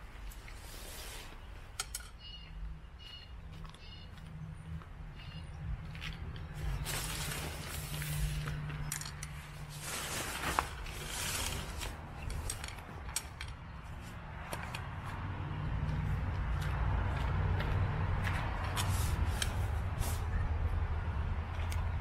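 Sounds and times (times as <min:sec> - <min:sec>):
tent fabric rustling: 0:06.6 - 0:08.5, 0:09.4 - 0:12.6.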